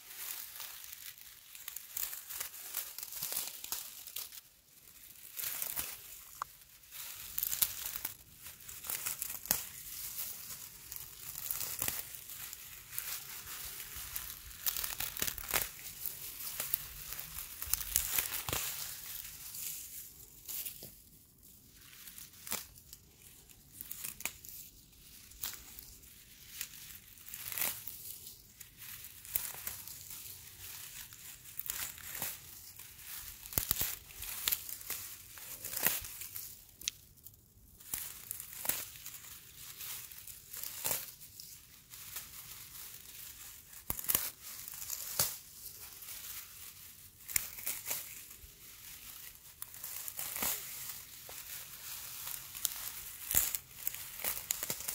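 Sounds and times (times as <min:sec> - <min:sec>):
dry grass crackling and tearing: 0:00.0 - 0:54.9
brittle stems snapping: 0:05.3 - 0:19.8, 0:22.4 - 0:22.8, 0:23.8 - 0:24.5, 0:26.6 - 0:27.9, 0:31.6 - 0:37.0, 0:43.7 - 0:45.4, 0:47.2 - 0:48.3, 0:49.2 - 0:51.5, 0:52.2 - 0:54.9.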